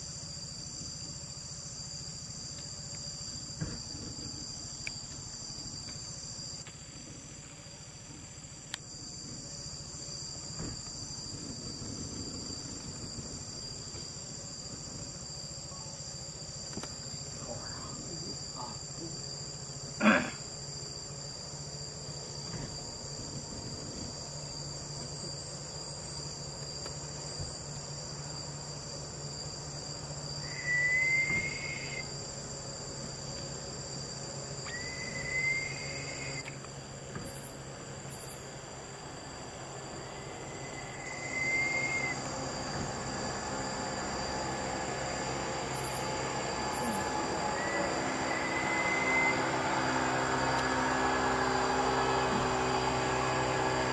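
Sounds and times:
insects trilling: 0.0s - 53.9s
short rising whistles: 30.4s - 32.2s, 34.6s - 36.5s, 40.0s - 44.6s, 45.8s - 52.8s.

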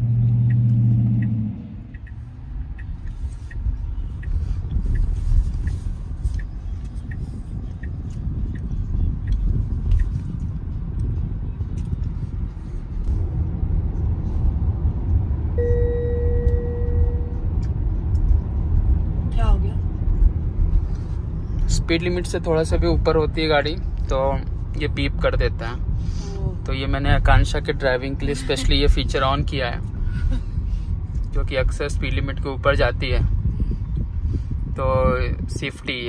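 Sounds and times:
light regular ticking: 0.3s - 12.0s
steady electronic beep: 15.6s - 17.4s.

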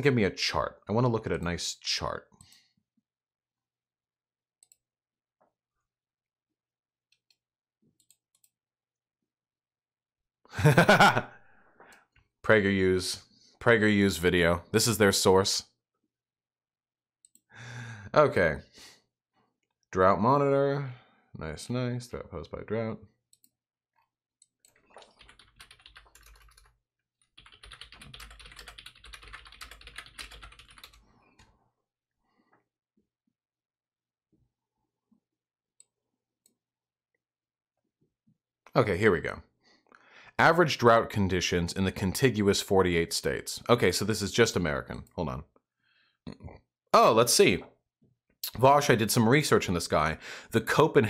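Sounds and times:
keyboard typing clicks: 27.3s - 31.0s
man's voice: 47.0s - 47.6s.

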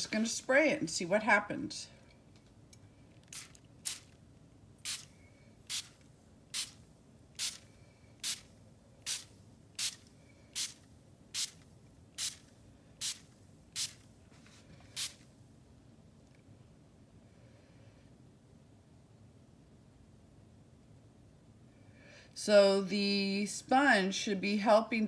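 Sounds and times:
spray bottle squirts: 3.2s - 4.2s, 4.8s - 5.1s, 5.7s - 6.0s, 6.6s - 6.8s, 7.4s - 7.6s, 8.2s - 8.5s, 9.1s - 10.0s, 10.6s - 10.8s, 11.4s - 11.6s, 12.2s - 12.4s, 13.8s - 14.0s, 14.9s - 15.2s.

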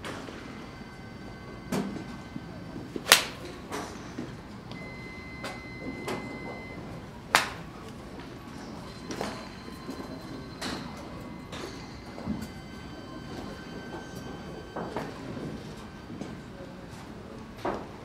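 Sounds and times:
golf iron striking ball: 3.0s - 3.4s.

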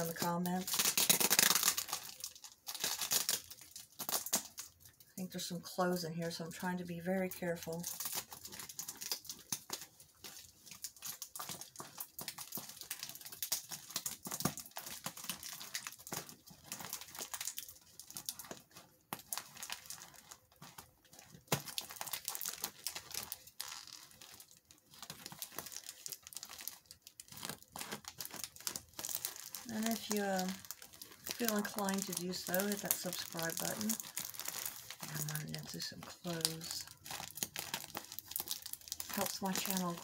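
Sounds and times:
plastic bag crinkling and tearing: 0.0s - 40.0s.

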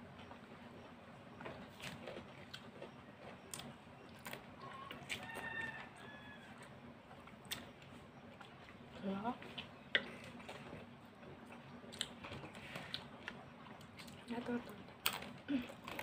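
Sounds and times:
eating with wet lip smacks: 7.2s - 8.8s.

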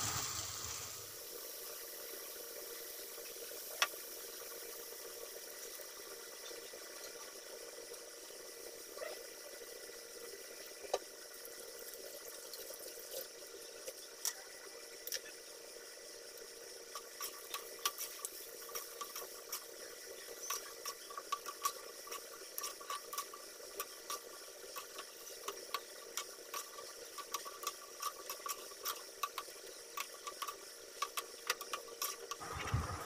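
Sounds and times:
fritters deep-frying in oil: 0.0s - 33.0s.

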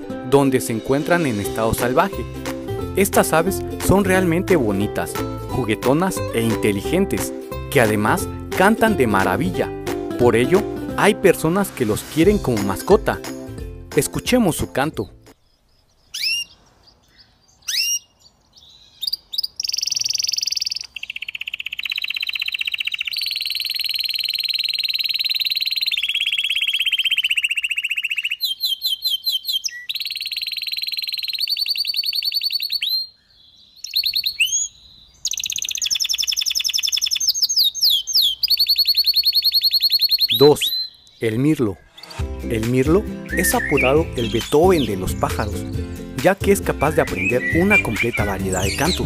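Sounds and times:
canary singing: 15.0s - 49.0s.

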